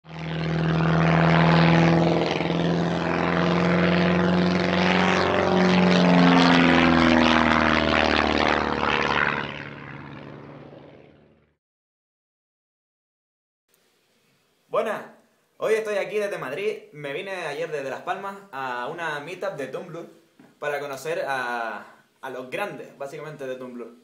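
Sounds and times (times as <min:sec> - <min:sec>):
propeller plane engine drone: 0:00.0 - 0:11.6.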